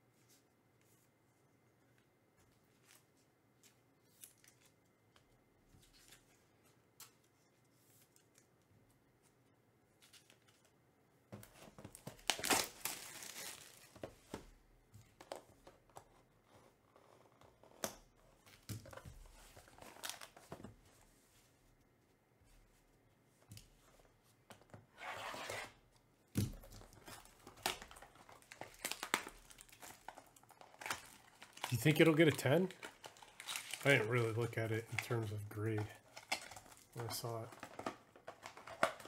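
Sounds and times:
plastic crinkling: 0:12.0 - 0:14.0, 0:26.5 - 0:39.0.

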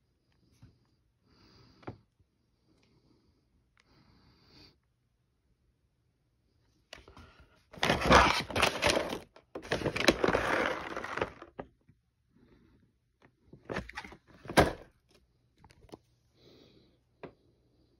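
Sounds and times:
plastic bag crinkling: 0:07.8 - 0:11.5.

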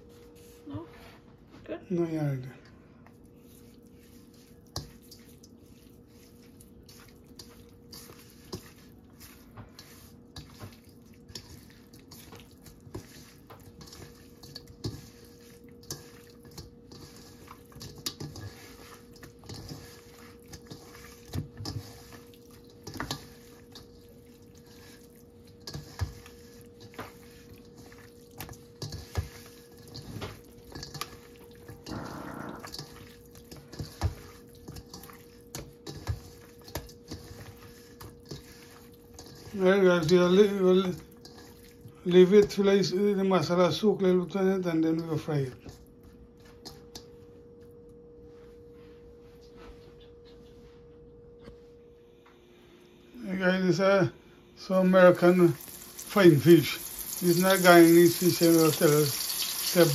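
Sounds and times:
hands squishing raw fish: 0:03.0 - 0:42.8.

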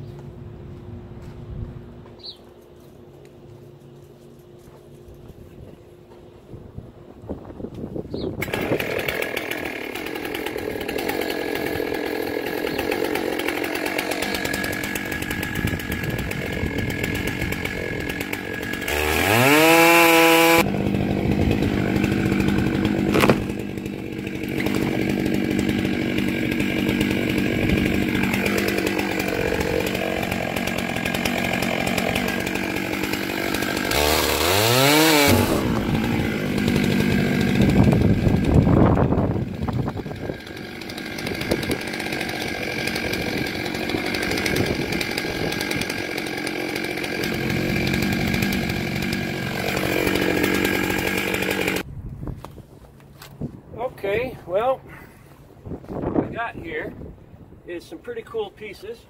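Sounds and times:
chainsaw cutting log: 0:08.4 - 0:51.9.

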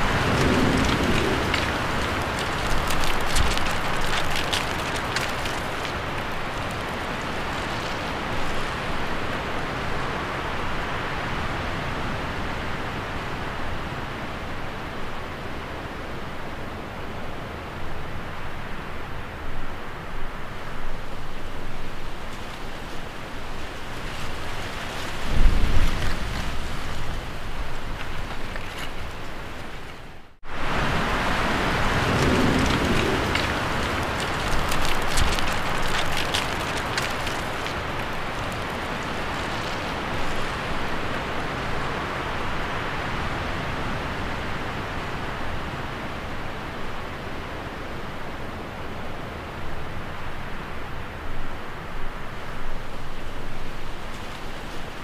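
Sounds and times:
low rumbles: 0:00.0 - 0:10.2, 0:20.6 - 0:42.7.

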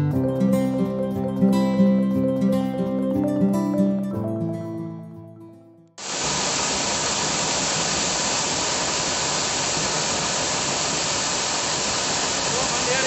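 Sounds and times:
guitar music: 0:00.0 - 0:05.9
waterfall rushing: 0:06.0 - 0:13.0.

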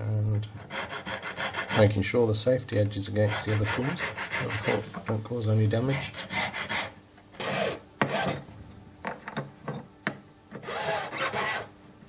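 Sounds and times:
needle file rasping on metal: 0:00.6 - 0:02.0, 0:03.1 - 0:05.0, 0:05.7 - 0:08.4, 0:10.6 - 0:11.7.

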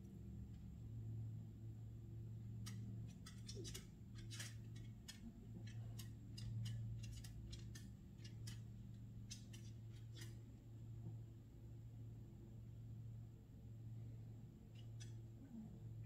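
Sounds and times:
woodpecker tapping: 0:02.6 - 0:08.7.

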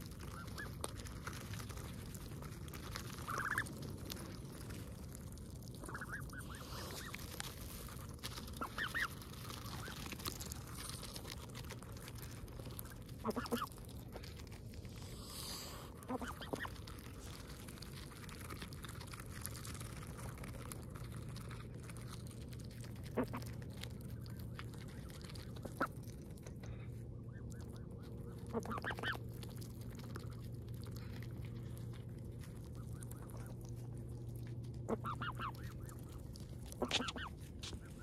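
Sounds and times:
low background rumble: 0:00.0 - 0:38.0
geese honking: 0:03.1 - 0:03.7, 0:05.8 - 0:07.2, 0:13.2 - 0:13.8, 0:27.2 - 0:29.2, 0:34.9 - 0:38.0.

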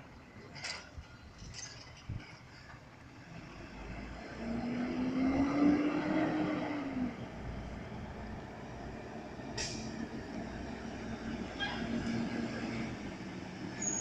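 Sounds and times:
vehicle engine speeding up: 0:03.3 - 0:13.7.

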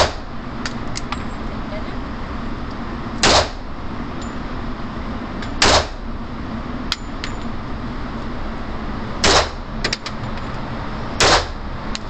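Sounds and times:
revolver shots echoing: 0:03.2 - 0:03.6, 0:05.6 - 0:06.0, 0:09.2 - 0:09.6.

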